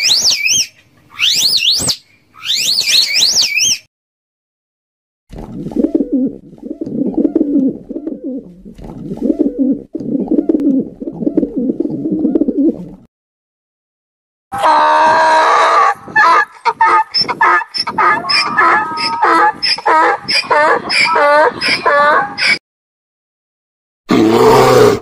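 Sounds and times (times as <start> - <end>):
pigeons cooing: 5.6 - 13.0
donkey braying: 14.6 - 22.6.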